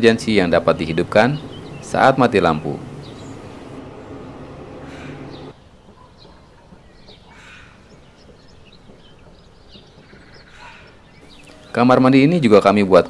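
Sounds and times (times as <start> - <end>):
low steady hum: 0.0 - 5.6.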